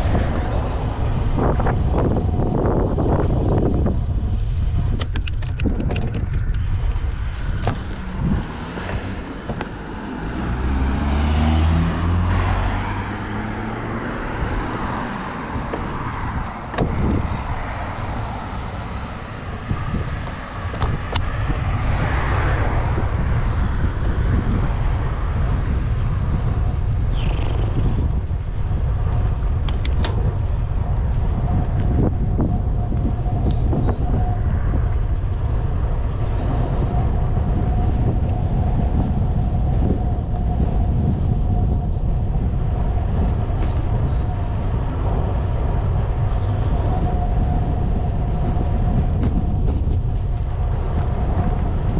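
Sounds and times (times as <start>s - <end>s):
wind rumble on microphone: 0.0s - 51.9s
light clicks and rattles: 4.9s - 6.6s
motor vehicle passing: 6.2s - 29.6s.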